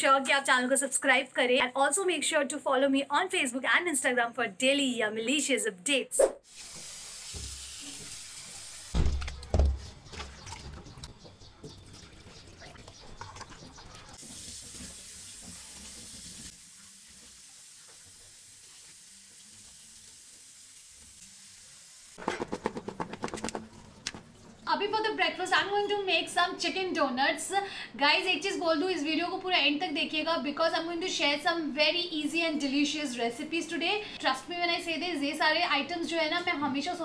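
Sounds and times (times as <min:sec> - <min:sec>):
tap water running into bowl: 0:06.5 - 0:21.2.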